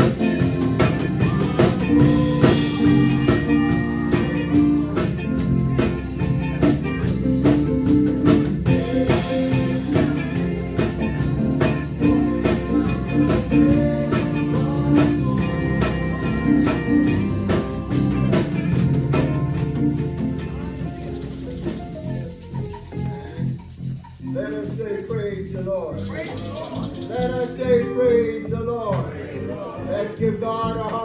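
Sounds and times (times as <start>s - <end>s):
drum kit steady beat: 0.0s - 23.8s
electric guitar: 0.0s - 24.6s
electric bass: 0.0s - 31.0s.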